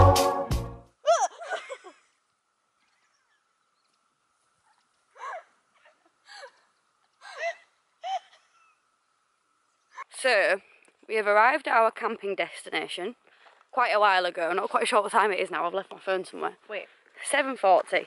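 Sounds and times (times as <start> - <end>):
organ music: 0.0 - 0.9
faint steady whine: 0.8 - 18.0.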